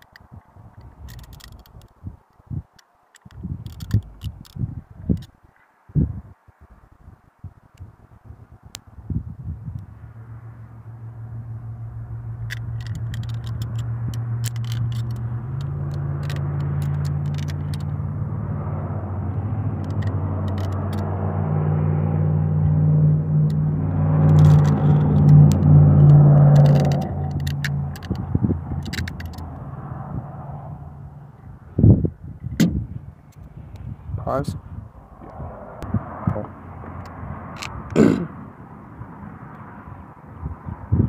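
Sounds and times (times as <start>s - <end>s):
vehicle engine humming: 0.0s - 5.5s, 6.6s - 41.0s
light clicks of small parts: 0.0s - 5.7s, 12.4s - 18.0s, 19.8s - 21.1s, 24.2s - 29.7s.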